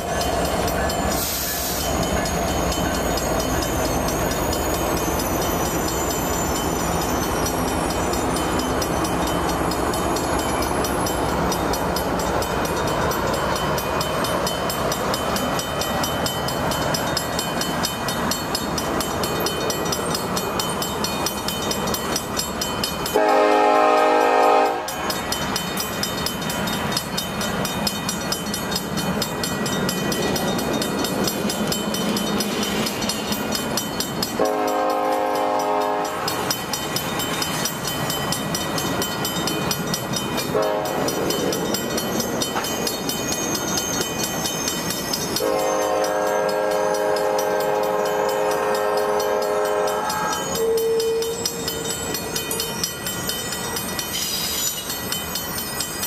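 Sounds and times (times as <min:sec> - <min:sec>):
train wheels on rails: 0:00.0 - 0:56.0
locomotive horn: 0:23.1 - 0:25.0, 0:34.4 - 0:36.2, 0:40.5 - 0:41.0, 0:45.4 - 0:51.5.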